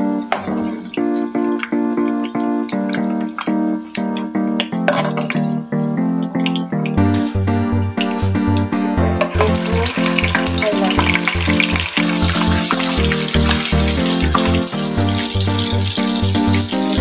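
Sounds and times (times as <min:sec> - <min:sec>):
background music with beat: 0:00.0 - 0:17.0
tofu sizzling in hot oil: 0:00.1 - 0:05.6, 0:09.3 - 0:17.0.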